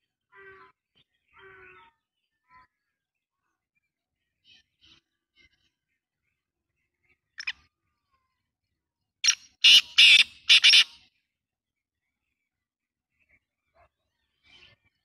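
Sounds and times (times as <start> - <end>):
francolin calling: 9.2 - 10.9.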